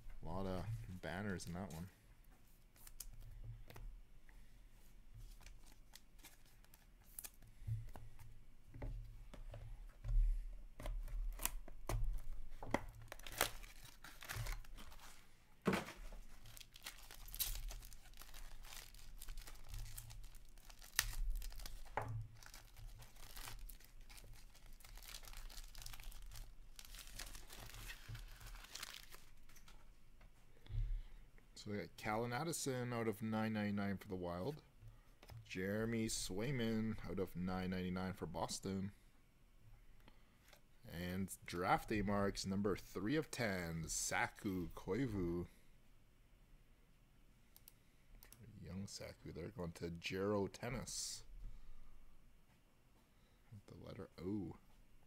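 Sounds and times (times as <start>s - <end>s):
foil wrapper tearing and crinkling: 13.1s - 15.2s, 16.3s - 29.5s.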